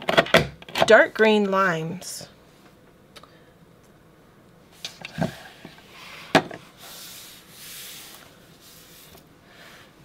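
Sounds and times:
hands rubbing card stock: 6.8s - 9.2s.

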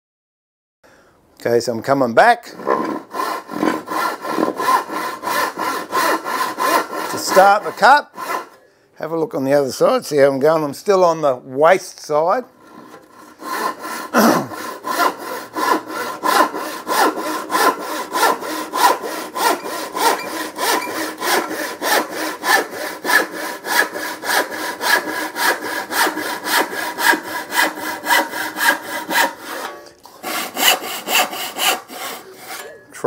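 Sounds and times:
handsaw ripping a board: 2.5s - 8.6s, 12.7s - 32.7s.

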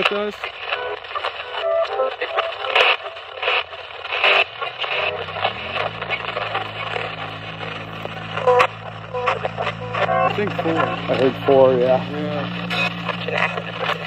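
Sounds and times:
clipped broadcast fragments: 0.0s - 14.0s
radio static bursts: 0.0s - 14.0s
low drone rising in pitch: 4.8s - 14.0s.

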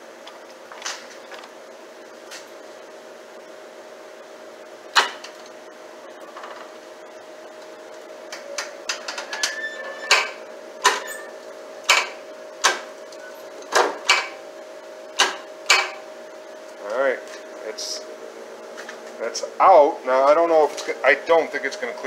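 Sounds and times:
steady hum: 0.0s - 22.0s
short squeak: 9.3s - 10.3s, 11.0s - 11.4s.

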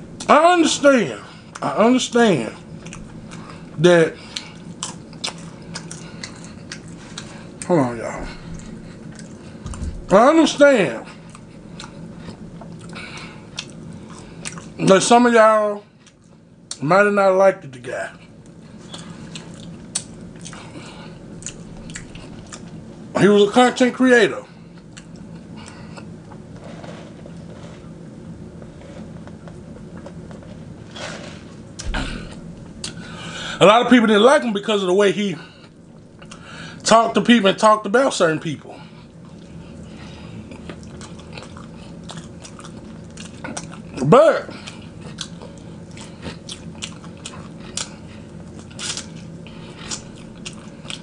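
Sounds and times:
low steady hum: 0.0s - 51.0s
person chewing: 2.6s - 9.8s, 11.1s - 14.8s, 15.9s - 16.8s, 18.3s - 22.9s, 24.7s - 33.3s, 35.6s - 36.8s, 38.8s - 51.0s.

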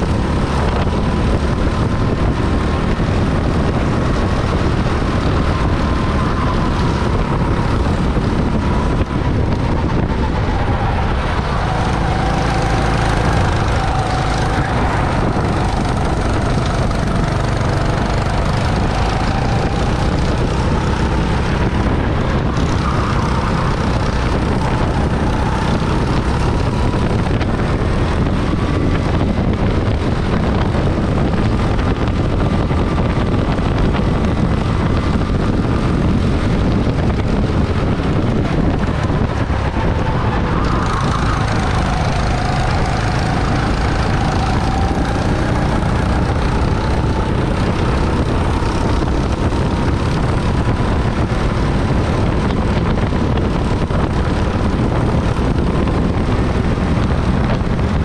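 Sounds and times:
go-kart engine drone: 0.0s - 58.0s
wind rush on microphone: 0.0s - 58.0s.

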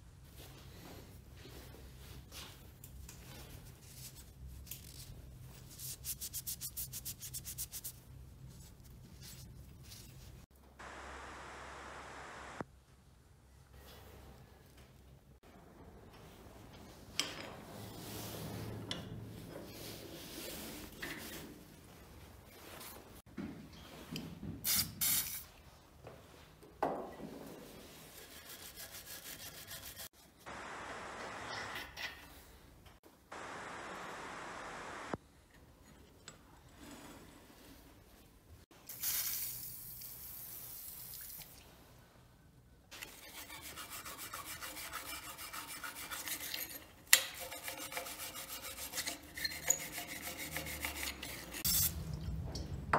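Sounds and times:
cloth rag rubbing metal rod: 43.1s - 52.0s.

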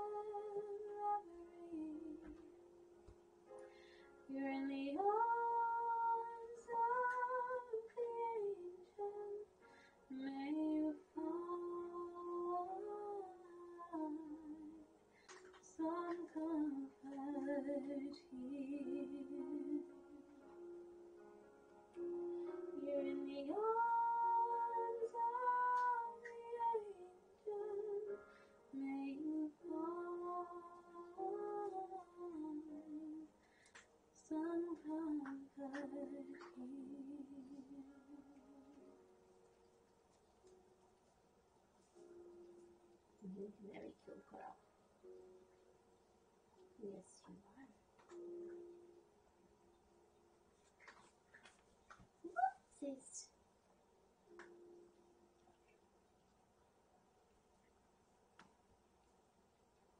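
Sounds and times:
woman singing wordless melody: 0.0s - 2.5s, 4.2s - 14.9s, 15.6s - 20.6s, 22.7s - 33.4s, 34.2s - 39.0s.

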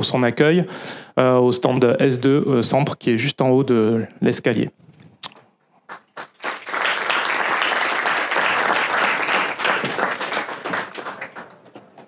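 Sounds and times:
audience applauding: 5.9s - 11.8s.

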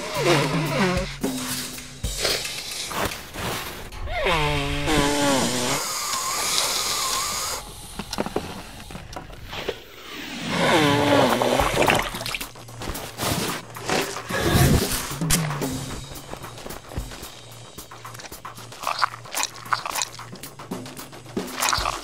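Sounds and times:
cartoon nose blowing: 0.0s - 1.6s, 4.1s - 7.7s, 10.4s - 20.4s.

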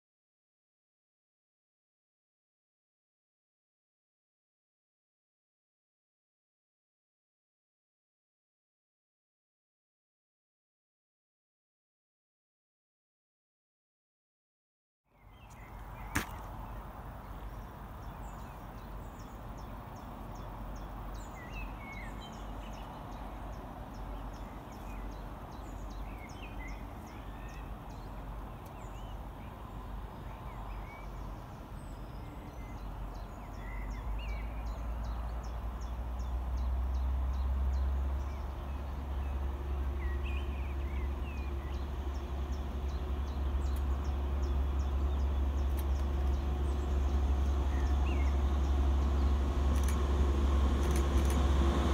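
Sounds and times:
birds singing: 15.1s - 51.9s
diesel locomotives rumbling: 15.6s - 51.9s.

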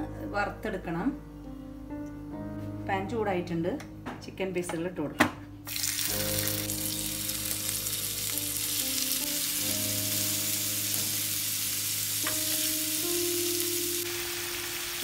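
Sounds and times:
soft background music: 0.0s - 15.0s
chicken sizzling in oil: 5.7s - 15.0s.

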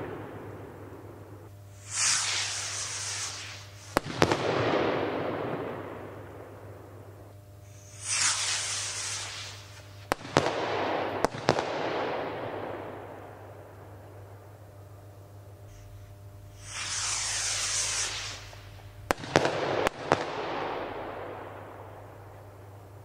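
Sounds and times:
firework launch hiss: 0.0s - 6.9s, 7.6s - 13.1s, 15.6s - 22.4s
firework bangs with rumbling echo: 0.0s - 7.0s, 8.0s - 13.2s, 16.6s - 22.4s.

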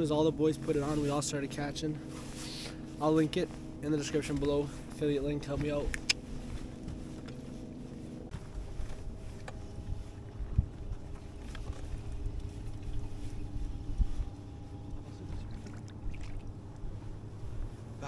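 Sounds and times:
faint steady hum: 0.0s - 18.0s
wind and water rumble: 0.0s - 18.0s.

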